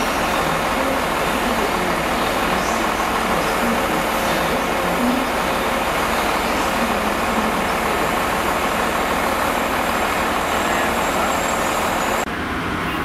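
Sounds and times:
locomotive rumble and hiss: 0.0 - 13.0.

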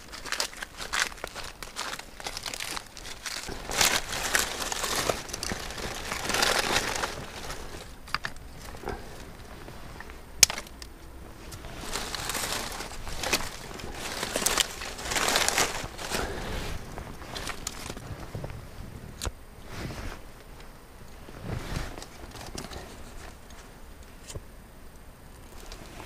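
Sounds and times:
bark tearing and crinkling: 0.0 - 18.6, 22.0 - 24.4
twigs rustling: 0.0 - 26.0
twig snapping: 10.0 - 16.3.

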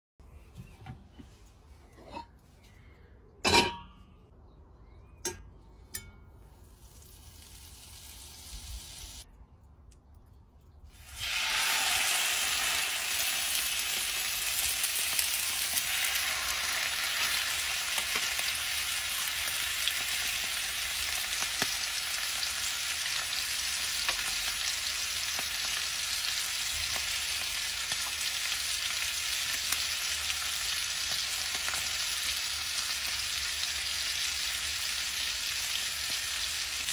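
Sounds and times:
steaks sizzling in a skillet: 11.0 - 36.9.

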